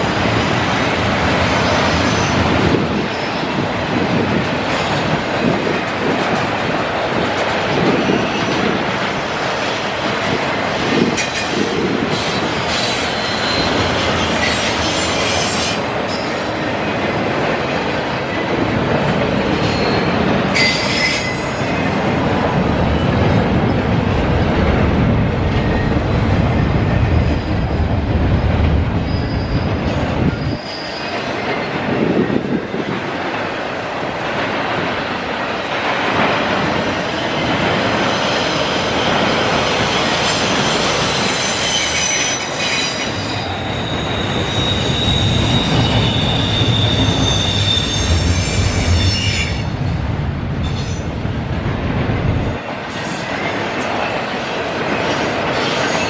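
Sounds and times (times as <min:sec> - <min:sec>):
train wheels rumbling on rail: 0:00.0 - 0:56.0
high-pitched wheel squeal: 0:12.8 - 0:16.2, 0:39.7 - 0:49.8.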